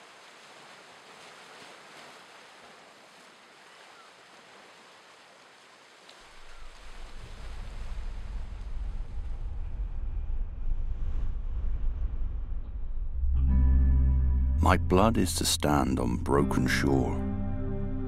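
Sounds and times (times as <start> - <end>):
surf washing over rocks: 0.0 - 9.0
deep low rumble: 6.9 - 16.4.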